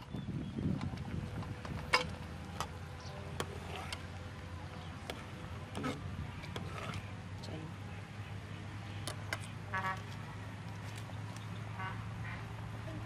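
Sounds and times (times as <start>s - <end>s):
metal ladle stirring in pot: 1.9s - 4.2s, 5.0s - 7.1s.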